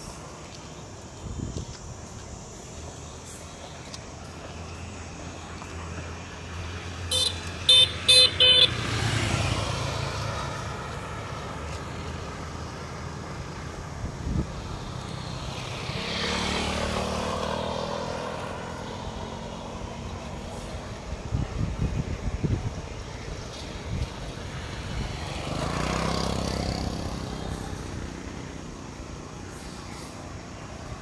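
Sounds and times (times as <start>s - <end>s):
vehicles passing: 0.0s - 31.0s
vehicle horn toots: 7.1s - 8.8s.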